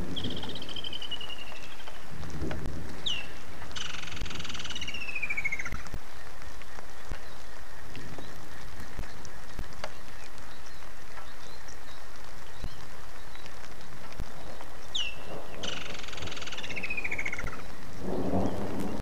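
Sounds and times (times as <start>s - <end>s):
rain hiss: 0.0s - 19.0s
raindrops ticking: 0.0s - 19.0s
bird call and rattling trill: 3.0s - 5.8s.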